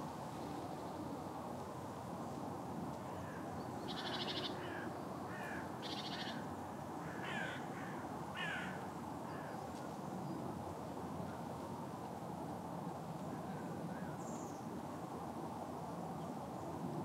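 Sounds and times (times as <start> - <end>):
steady background noise: 0.0 - 17.0
crows calling harshly: 3.2 - 6.4, 7.0 - 9.5.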